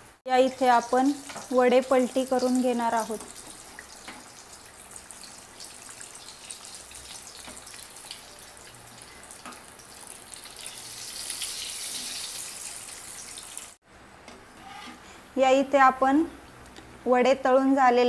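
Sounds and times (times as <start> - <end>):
food deep-frying in hot oil: 0.1 - 13.8.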